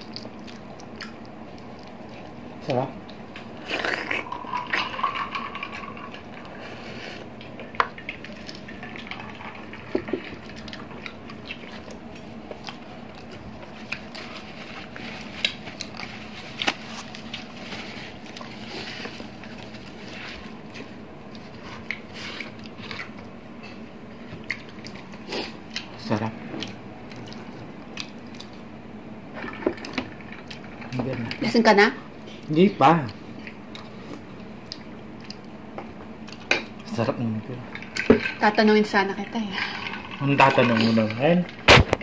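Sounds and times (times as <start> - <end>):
wet mouth eating sounds: 0.0 - 2.4, 3.0 - 4.9, 9.9 - 17.5.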